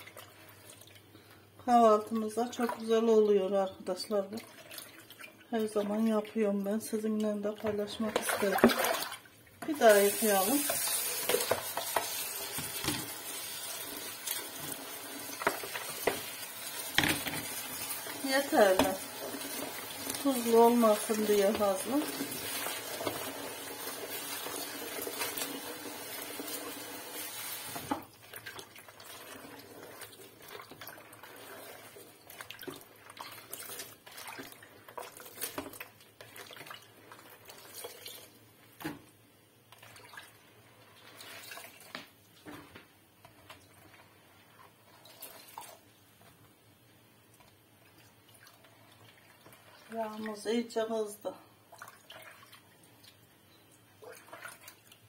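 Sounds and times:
small splashes: 7.2s - 9.4s, 28.2s - 38.3s, 54.0s - 55.0s.

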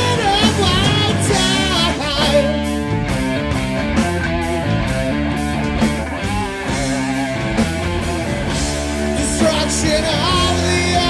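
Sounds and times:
person singing: 0.0s - 2.9s, 9.1s - 11.0s
drums: 0.0s - 11.0s
electric guitar: 0.0s - 11.0s.

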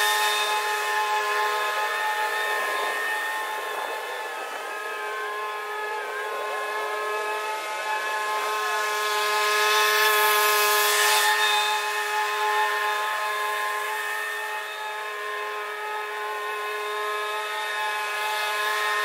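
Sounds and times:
lawn tractor mowing: 0.0s - 14.1s.

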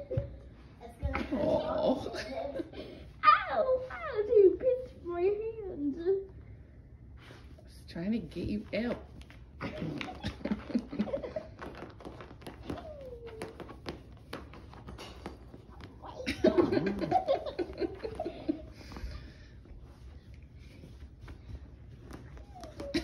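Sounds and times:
puppy paws scratching blanket: 3.2s - 6.0s, 7.2s - 23.0s
person laughing: 9.6s - 11.6s, 16.2s - 18.8s.

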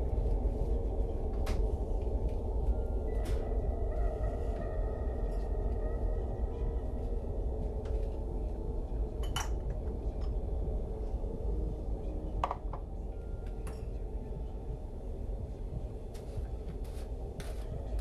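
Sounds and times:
steady low hum: 0.0s - 18.0s
glassware clinking: 9.2s - 9.6s.

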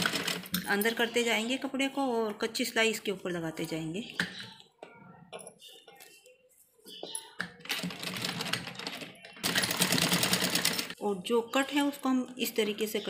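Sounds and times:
sewing machine running: 0.0s - 0.6s, 7.7s - 11.0s.

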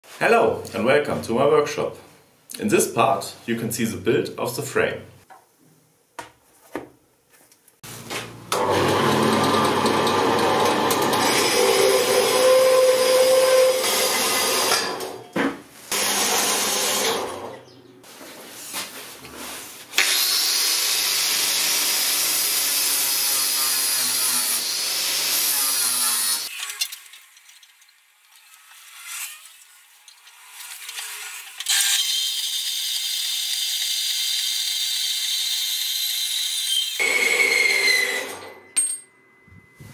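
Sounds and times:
band saw running: 8.5s - 15.2s, 15.9s - 17.6s, 30.4s - 38.8s
power tools cutting steel: 8.5s - 17.6s, 20.0s - 38.8s.

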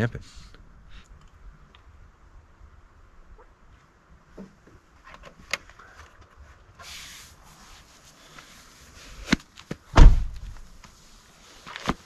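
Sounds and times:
heavy thump: 10.0s - 10.6s.

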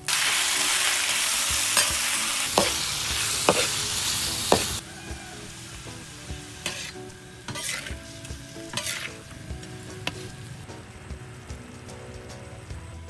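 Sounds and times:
chicken sizzling in a wok: 0.0s - 13.0s
metal spatula scraping a wok: 1.7s - 4.8s, 5.5s - 10.7s.

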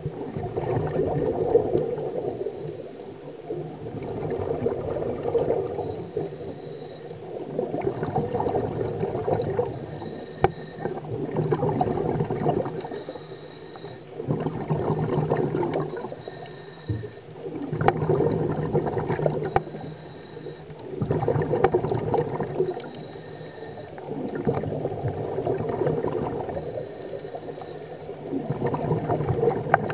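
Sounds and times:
exhaled air bubbling: 0.0s - 29.9s
diver breathing through regulator: 5.5s - 7.3s, 9.6s - 11.0s, 12.7s - 14.2s, 15.7s - 17.4s, 19.3s - 20.9s, 22.6s - 24.2s, 26.4s - 28.2s.

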